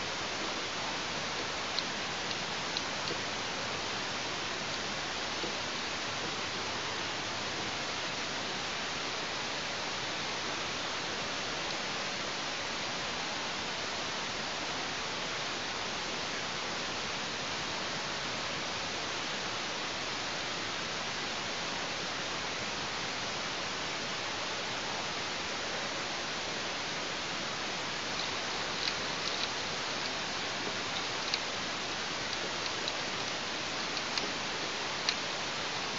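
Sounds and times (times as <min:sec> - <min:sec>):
steady hiss: 0:00.0 - 0:35.9.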